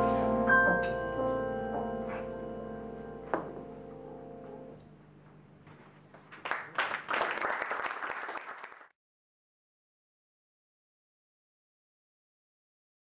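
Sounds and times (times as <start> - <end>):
jazz band chord ringing: 0.0 - 4.8
audience applause: 6.2 - 8.9.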